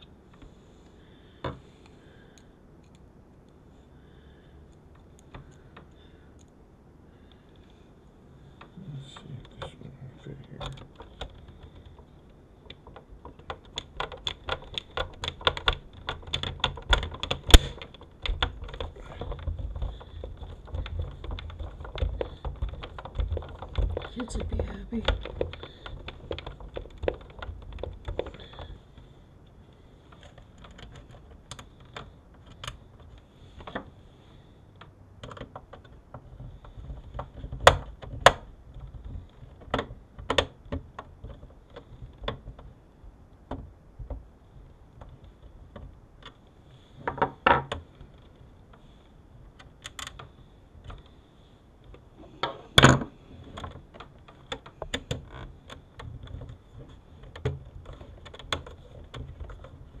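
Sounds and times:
plastic and metal parts clicking: 10.4 - 42.8, 47.0 - 51.2, 51.8 - 60.0.

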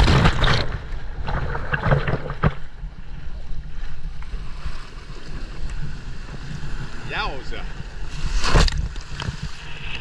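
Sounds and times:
sharp splashes and crackles: 0.0 - 2.9.

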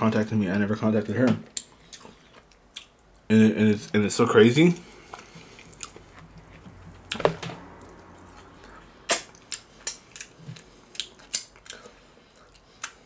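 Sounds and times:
crunchy chewing: 4.8 - 13.0.

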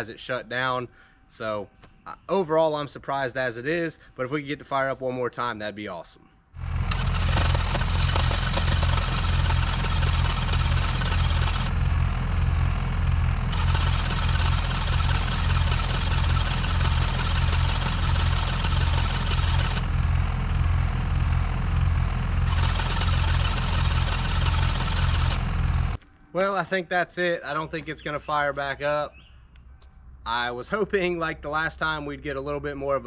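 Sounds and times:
engine starter cranking: 6.6 - 26.0.

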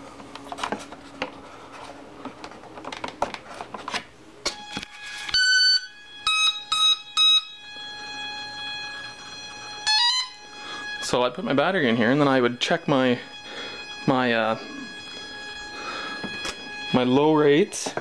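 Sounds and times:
electronic start-up beeps: 8.3 - 18.0.

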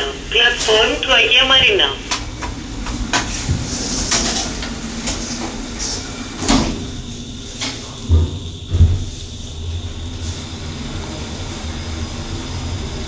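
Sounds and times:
lift doors sliding shut: 0.0 - 9.2.

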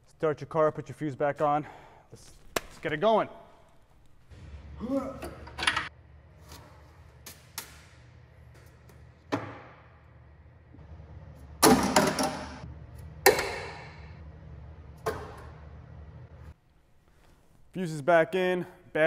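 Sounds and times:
low hum: 9.8 - 17.1
hard parts knocking and clattering: 11.6 - 12.6.

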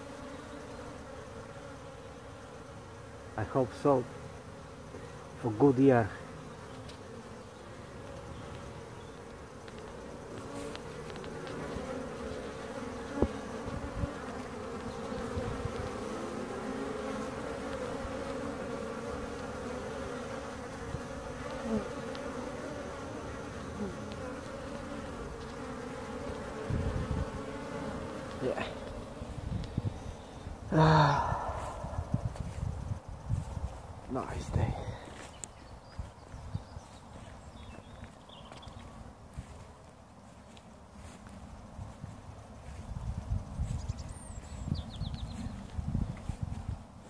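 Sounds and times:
bees humming: 0.0 - 33.5
single bee flying past: 0.0 - 35.5
low microphone rumble: 31.0 - 33.6.

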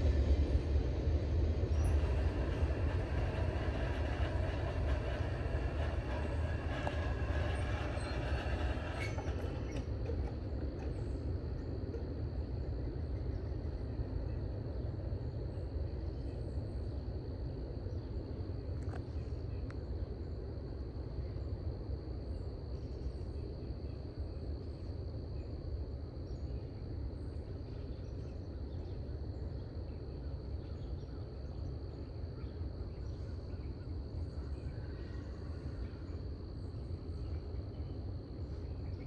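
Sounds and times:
high-pitched insect chorus: 15.2 - 39.0.

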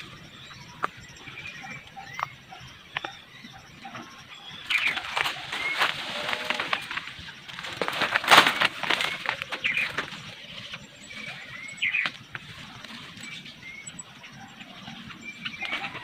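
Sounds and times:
bird chirping: 0.0 - 16.0
rustling through undergrowth: 4.5 - 13.8.

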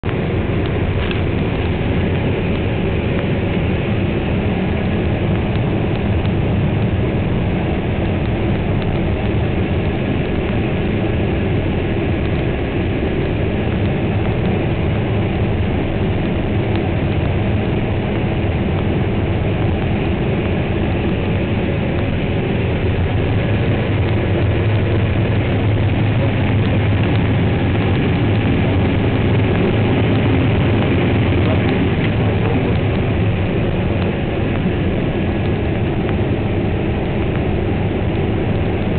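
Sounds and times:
combine harvester droning: 0.0 - 38.9.

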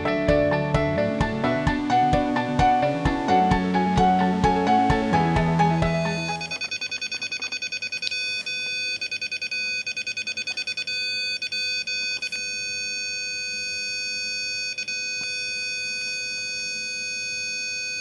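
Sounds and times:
camera buzzer beeping: 6.0 - 18.0.

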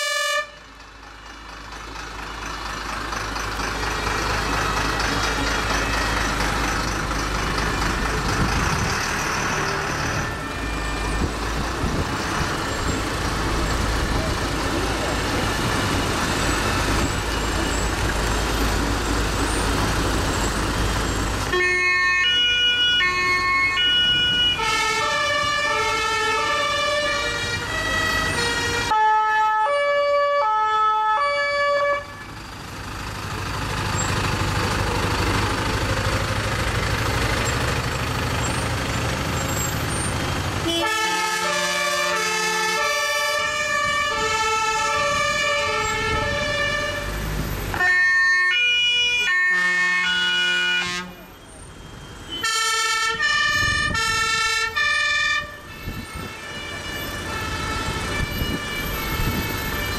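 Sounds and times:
two-tone sirens: 0.0 - 0.7, 21.4 - 32.5, 40.6 - 59.9
truck diesel engines: 0.0 - 59.9.

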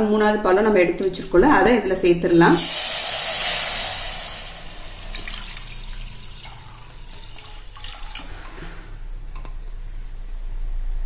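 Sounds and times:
liquid pouring into pan: 2.6 - 8.6
drips and small splashes: 5.0 - 8.6.

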